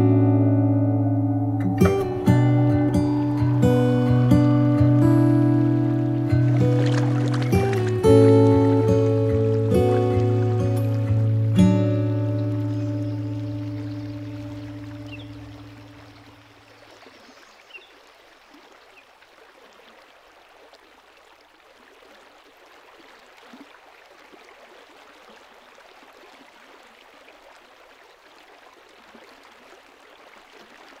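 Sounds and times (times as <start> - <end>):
held music chord: 0.0 - 15.7
faint stream rushing: 0.0 - 31.0
faint high chirps: 0.3 - 5.8.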